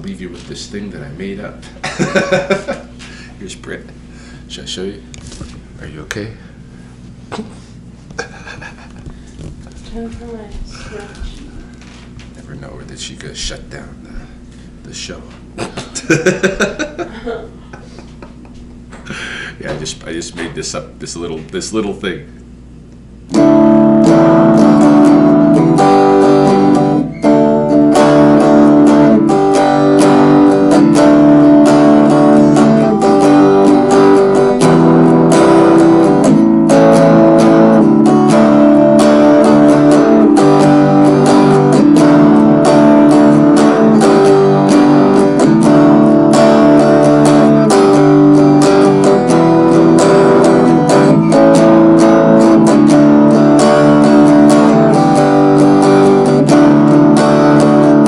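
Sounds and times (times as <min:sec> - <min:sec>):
clean electric guitar playing: 0:01.2 - 0:03.3, 0:23.2 - 0:58.0.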